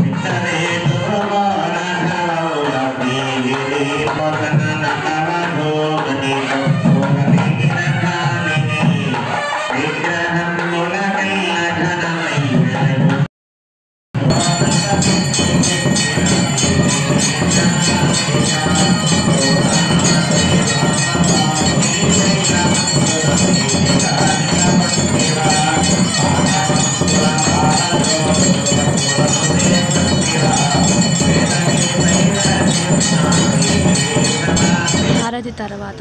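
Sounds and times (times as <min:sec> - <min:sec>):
music: 0:00.0 - 0:13.3, 0:14.2 - 0:36.0
temple bells ringing rapidly: 0:14.2 - 0:35.8.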